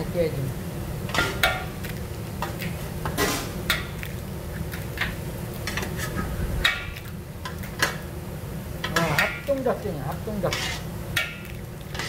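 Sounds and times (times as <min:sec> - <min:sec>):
metal spatula scraping griddle: 0:08.9 - 0:09.4, 0:10.4 - 0:12.0.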